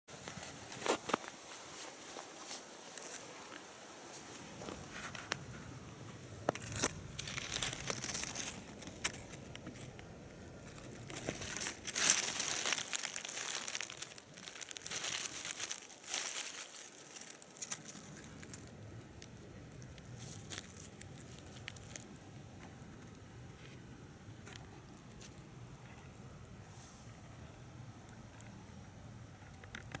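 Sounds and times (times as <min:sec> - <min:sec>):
dry leaves and grass rustling: 0:00.1 - 0:26.2.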